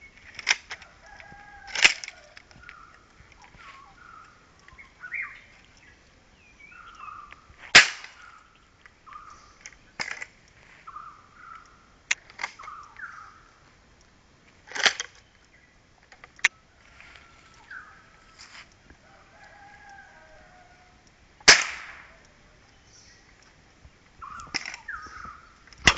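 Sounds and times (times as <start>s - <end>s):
gunshots: 21.5s - 22.1s.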